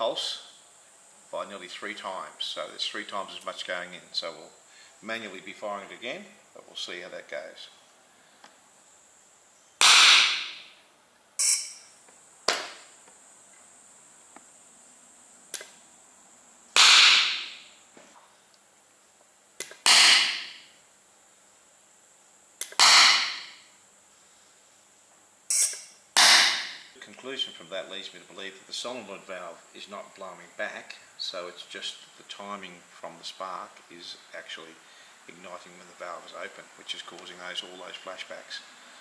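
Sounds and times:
sharp clicks: 0:15.5 - 0:15.8, 0:22.6 - 0:23.1.

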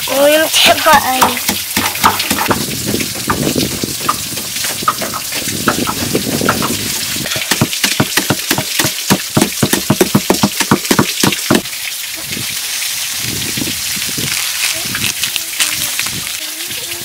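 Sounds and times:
stone pestle pounding in mortar: 0:01.2 - 0:11.6.

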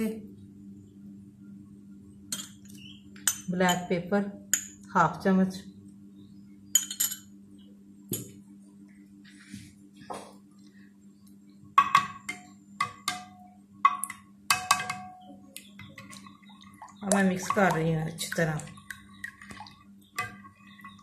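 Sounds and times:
steady low hum: 0:00.0 - 0:21.0
spoon clinking against glass bowl: 0:03.2 - 0:03.9, 0:06.8 - 0:07.3.

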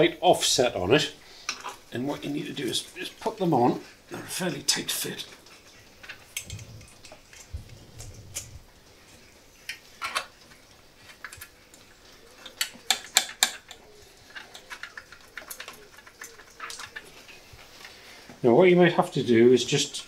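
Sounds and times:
low handling rumble: 0:06.5 - 0:09.0.

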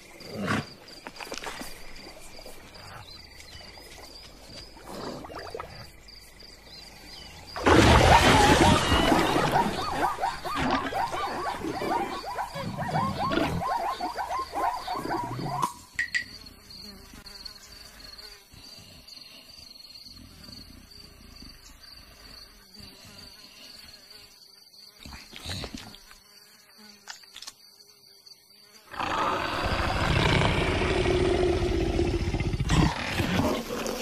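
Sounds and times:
high insect buzz: 0:00.0 - 0:34.0
leopard roar: 0:07.6 - 0:15.6, 0:28.9 - 0:34.0.

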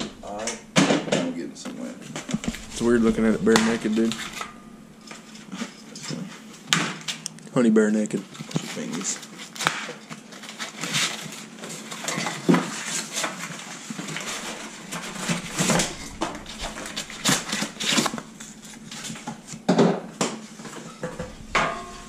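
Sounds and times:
metal frame pieces clanking: 0:02.2 - 0:05.3, 0:14.2 - 0:19.6, 0:20.8 - 0:22.0.

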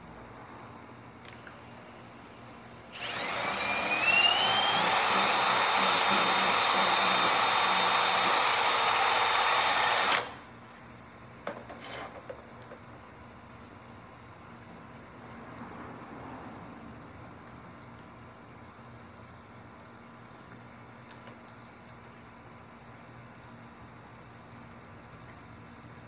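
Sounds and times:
power drill whining: 0:01.3 - 0:10.4.

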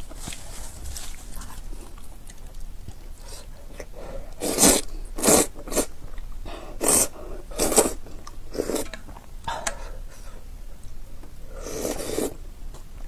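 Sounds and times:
soft chewing: 0:00.0 - 0:06.5, 0:07.6 - 0:13.0
noodles being slurped: 0:04.4 - 0:05.9, 0:06.8 - 0:08.9, 0:11.6 - 0:12.4.

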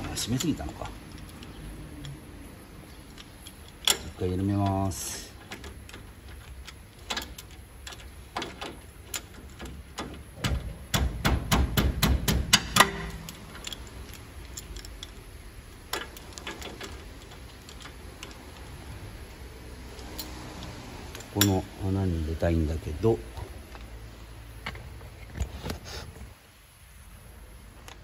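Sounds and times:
ratchet wrench clicking: 0:00.0 - 0:19.1.

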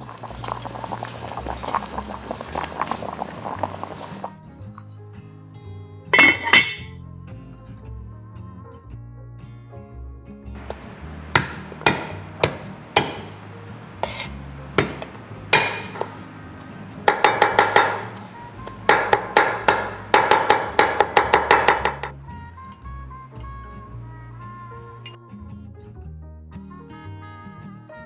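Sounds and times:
cleaver chopping on wooden board: 0:10.6 - 0:13.4, 0:14.0 - 0:16.3, 0:17.0 - 0:22.2
cleaver whacking garlic on board: 0:10.7 - 0:13.4, 0:14.8 - 0:16.2.

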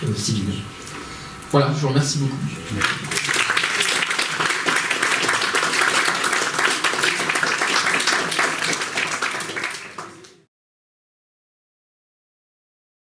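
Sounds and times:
audience applauding: 0:02.8 - 0:10.5.

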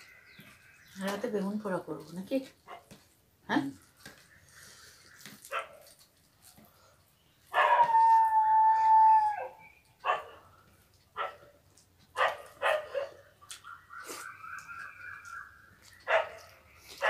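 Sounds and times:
dog barking: 0:05.5 - 0:05.9, 0:07.6 - 0:07.8, 0:10.0 - 0:10.5, 0:11.2 - 0:11.5, 0:12.2 - 0:13.3, 0:16.1 - 0:16.5.

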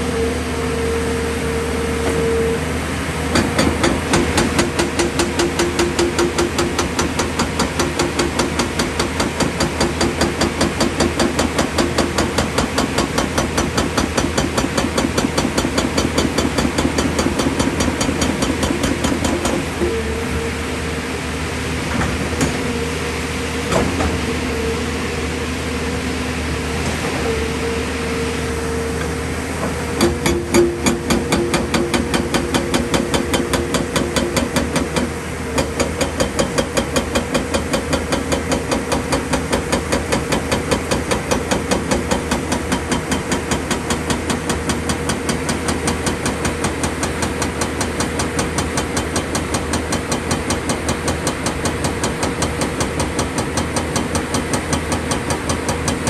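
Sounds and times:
hydraulic breaker hammering rock: 0:03.3 - 0:20.0, 0:30.0 - 0:56.0.

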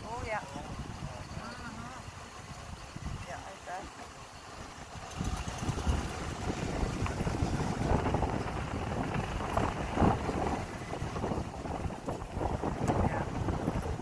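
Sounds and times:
wind buffeting microphone: 0:00.0 - 0:03.6, 0:04.4 - 0:14.0
truck driving: 0:00.0 - 0:14.0.

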